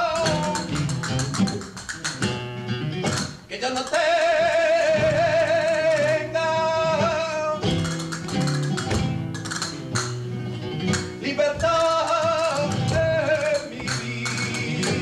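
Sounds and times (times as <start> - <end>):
person singing: 0.0 - 0.8, 3.5 - 7.6, 11.2 - 15.0
guitar playing: 0.0 - 3.5, 5.0 - 15.0.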